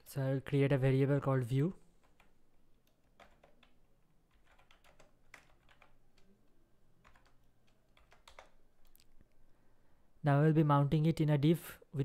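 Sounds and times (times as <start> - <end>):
typing on a computer keyboard: 2.0 - 6.4, 7.0 - 9.0.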